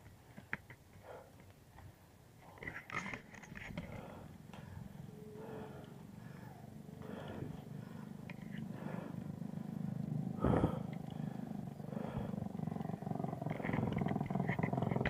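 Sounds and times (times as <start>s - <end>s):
bicycle rolling on pavement: 7.8s - 15.0s.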